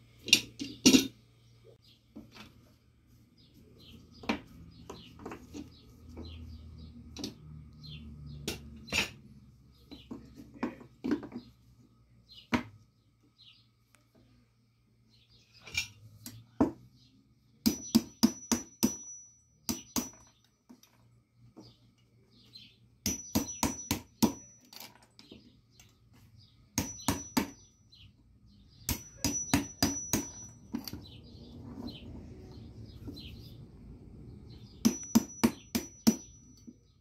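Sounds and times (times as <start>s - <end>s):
hammer striking steel blade: 28.9s - 30.6s, 34.8s - 36.7s.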